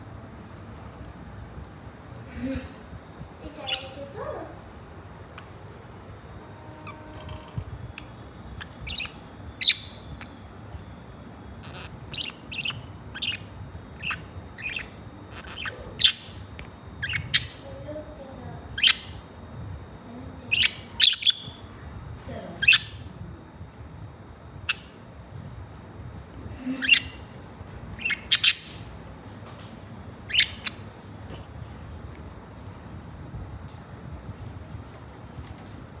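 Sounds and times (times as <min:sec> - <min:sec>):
budgerigars chirping: 0:08.6 - 0:10.3, 0:11.6 - 0:17.6, 0:18.8 - 0:19.2, 0:20.5 - 0:21.6, 0:26.8 - 0:27.2, 0:28.0 - 0:29.0, 0:30.3 - 0:30.9.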